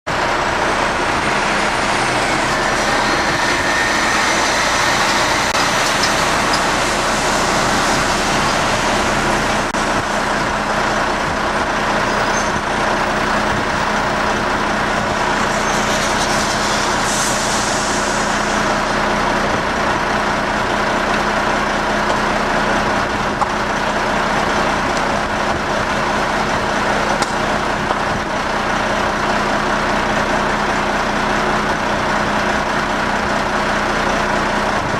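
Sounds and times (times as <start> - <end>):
brief high hiss: 15.4 - 18.9.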